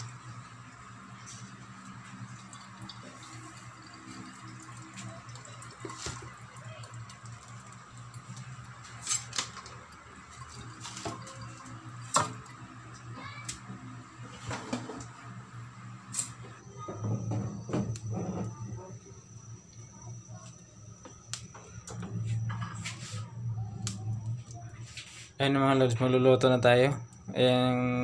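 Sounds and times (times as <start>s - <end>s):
steady low hum: 0.0s - 28.0s
water dripping into a wok: 1.7s - 8.8s.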